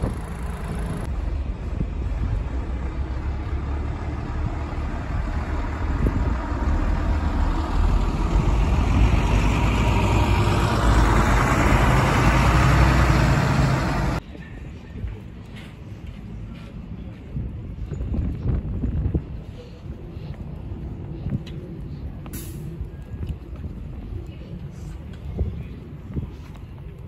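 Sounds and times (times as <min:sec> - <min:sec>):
diesel bus driving past: 0:00.0 - 0:14.2
street noise: 0:00.0 - 0:27.0.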